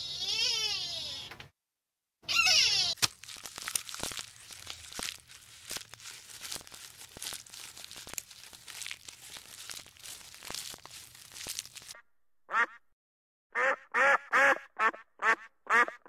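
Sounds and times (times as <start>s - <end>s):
leaves and twigs crackling: 3.0s - 12.0s
duck calling: 12.5s - 12.8s, 13.6s - 16.0s.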